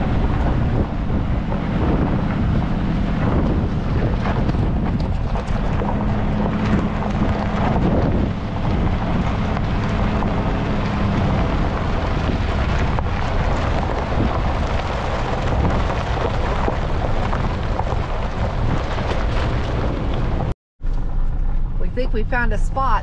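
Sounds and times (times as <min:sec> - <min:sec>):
low hum: 0:00.0 - 0:23.0
truck road noise: 0:00.0 - 0:23.0
wind buffeting microphone: 0:00.0 - 0:23.0.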